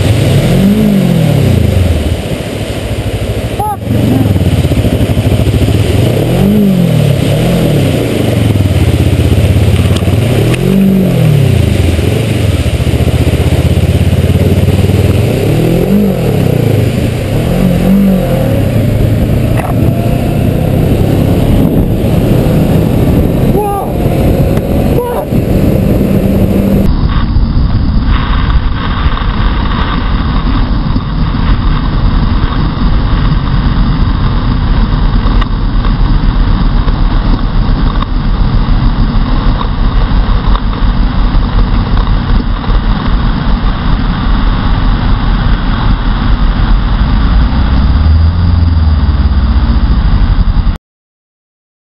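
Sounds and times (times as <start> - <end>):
water spraying: 0.0 - 26.9
motorcycle engine running: 0.0 - 50.8
wind rush: 0.0 - 50.8.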